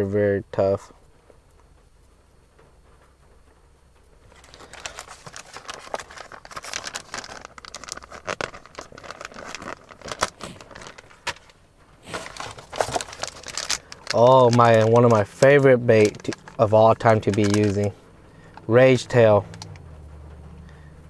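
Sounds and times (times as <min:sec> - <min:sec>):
plastic packaging crinkling: 0:04.2 - 0:19.9.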